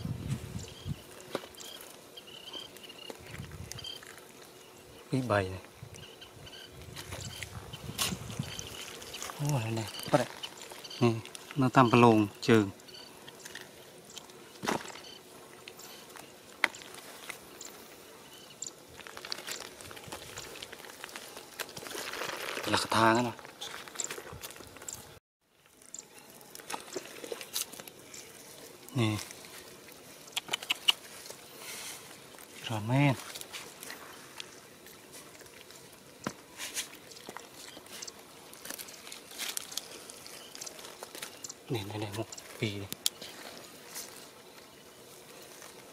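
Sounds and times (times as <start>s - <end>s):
hands digging dry mud: 6.8s - 17.9s, 18.7s - 25.0s, 26.3s - 45.9s
wet clicks of fish in mud: 26.5s - 28.2s, 30.2s - 31.1s, 33.4s - 43.2s.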